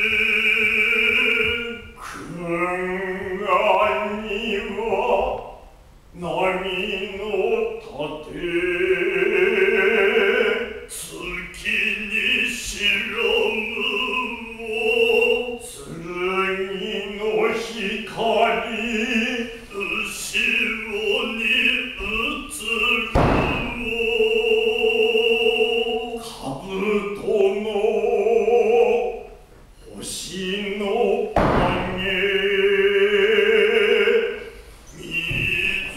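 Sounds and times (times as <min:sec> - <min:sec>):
heavy thump: 0:23.1 - 0:24.0, 0:31.3 - 0:32.2, 0:35.2 - 0:35.9.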